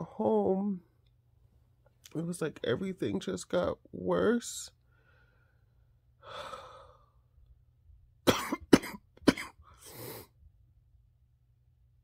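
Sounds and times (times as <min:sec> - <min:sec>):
woman breathing: 0:04.8 - 0:07.4, 0:09.6 - 0:10.4
woman coughing: 0:08.2 - 0:09.6.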